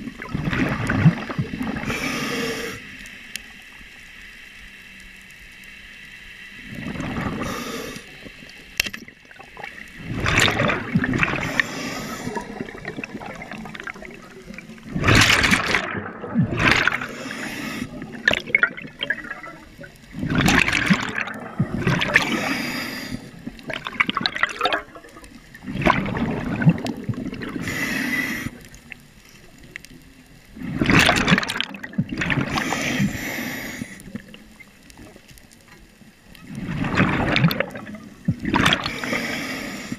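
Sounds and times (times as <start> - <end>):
exhaled bubbles rushing: 0.0 - 2.0, 6.6 - 7.6, 9.0 - 27.8, 30.6 - 33.1, 36.4 - 39.4
regulator inhalation hiss: 1.8 - 3.0, 7.3 - 8.3, 11.4 - 13.2, 17.0 - 18.2, 22.2 - 23.5, 27.6 - 28.7, 32.5 - 34.2, 38.9 - 39.9.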